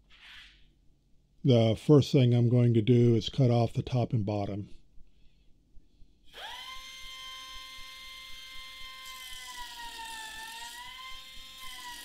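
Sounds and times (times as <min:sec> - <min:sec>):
die grinder high whine: 0:06.3 - 0:12.0
grinding wheel biting metal: 0:06.4 - 0:12.0.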